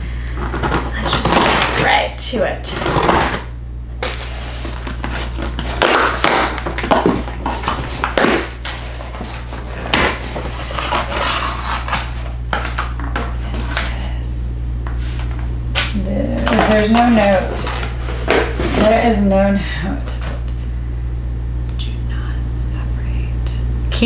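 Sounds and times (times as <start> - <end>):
packaging rustling and tearing: 0.4 - 1.9, 2.7 - 13.9, 15.0 - 19.0
sharp knocks and crackles: 2.8 - 14.0.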